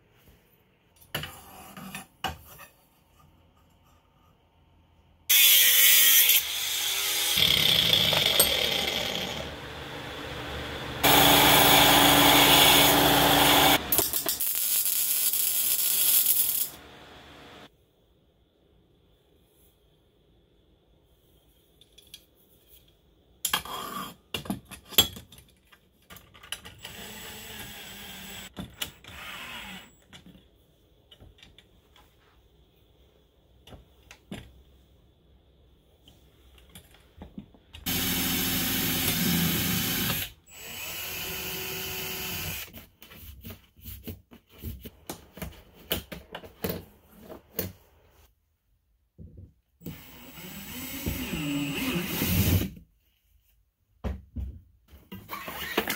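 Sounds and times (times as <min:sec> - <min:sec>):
cordless drill running: 0:11.0 - 0:13.9, 0:26.9 - 0:28.5, 0:37.9 - 0:42.7.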